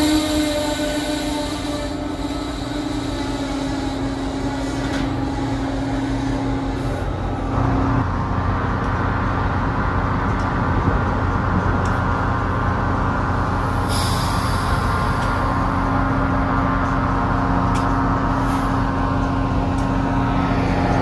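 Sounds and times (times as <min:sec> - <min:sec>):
air release hiss: 0:13.8 - 0:15.4.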